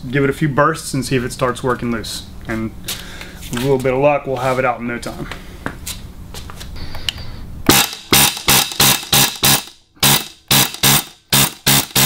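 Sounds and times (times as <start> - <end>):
chisel bit rattling on metal: 7.7 - 12.0
pneumatic air hammer bursts: 7.7 - 12.0.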